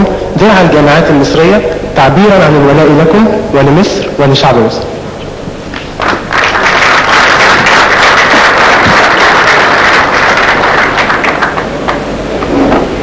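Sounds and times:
crowd applauding: 5.7s - 12.2s.

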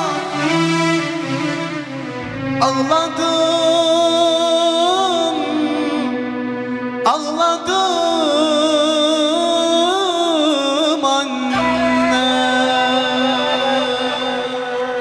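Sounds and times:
man singing into a microphone: 0.0s - 1.5s, 2.1s - 15.0s
sustained instrumental backing: 0.0s - 10.4s.

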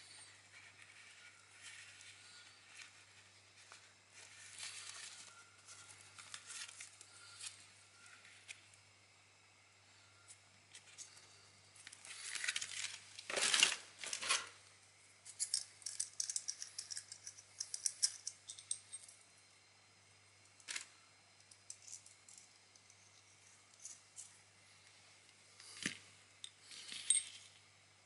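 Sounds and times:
small metal clicks: 15.3s - 19.1s.

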